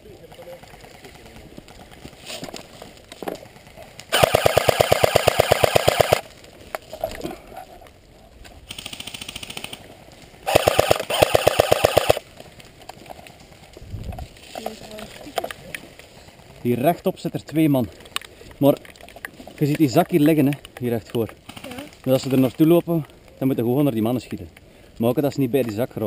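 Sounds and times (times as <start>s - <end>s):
airsoft gun full-auto bursts: 4.1s - 6.2s, 8.7s - 9.8s, 10.5s - 12.2s
fainter airsoft gun burst: 4.1s - 6.3s, 10.4s - 12.2s.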